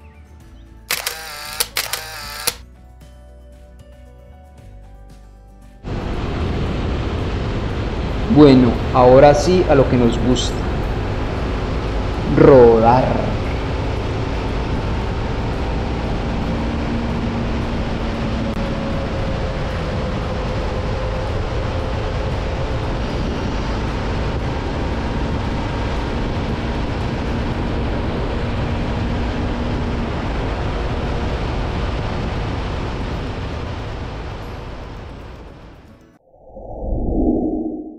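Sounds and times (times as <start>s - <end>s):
motorcycle engine humming: 5.9s - 9.0s, 10.1s - 12.2s, 13.3s - 31.7s
wind rushing: 36.2s - 37.9s.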